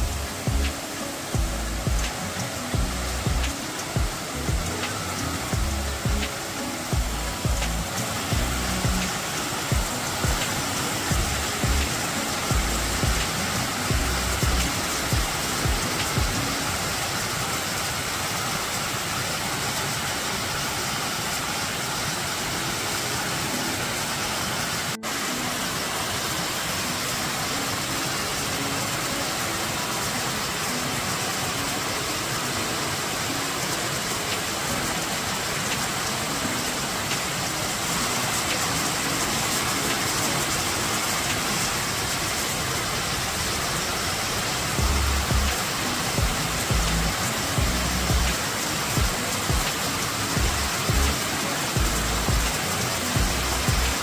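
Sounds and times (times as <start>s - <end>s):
waterfall rushing over rocks: 0.0s - 54.0s.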